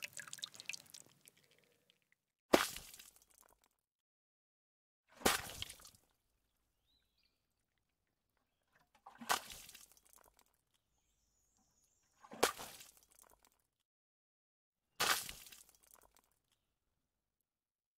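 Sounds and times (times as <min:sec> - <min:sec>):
water splashing onto cement: 0:00.0 - 0:01.7, 0:02.6 - 0:03.6, 0:05.2 - 0:06.0, 0:15.0 - 0:16.2.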